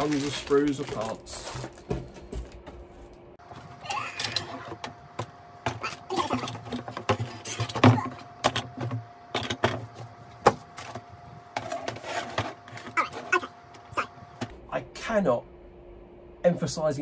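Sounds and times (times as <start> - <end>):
plastic bags crinkling: 0.0 - 2.6.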